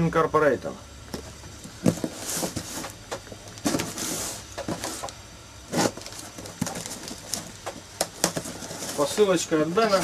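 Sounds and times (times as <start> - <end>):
plastic bag crinkling: 5.8 - 9.3.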